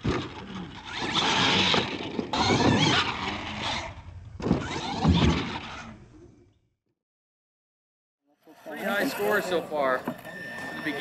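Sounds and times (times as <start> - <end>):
toy truck motor whine: 10.0 - 11.0.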